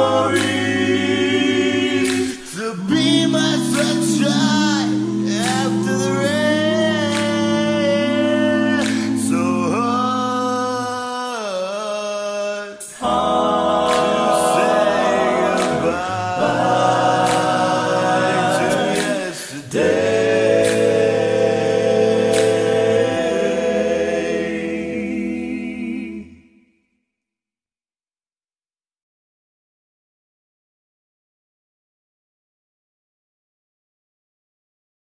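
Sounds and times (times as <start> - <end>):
a cappella vocal harmony: 0.0 - 26.8.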